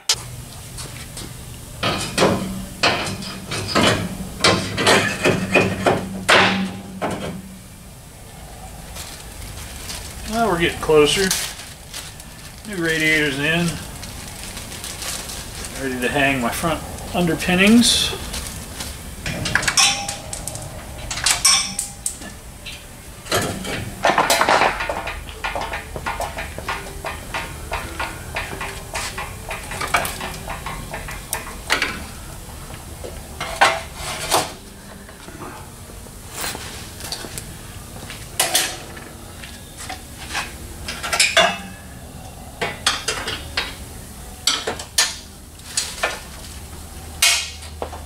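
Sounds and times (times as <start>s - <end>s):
metal parts clinking and rattling: 19.2s - 22.3s.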